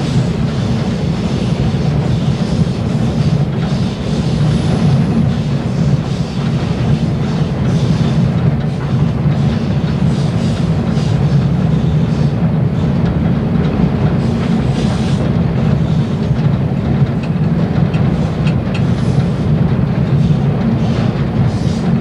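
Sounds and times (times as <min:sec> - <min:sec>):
diesel locomotive engines running: 0:00.0 - 0:22.0
train wheels clattering on rails: 0:00.0 - 0:22.0.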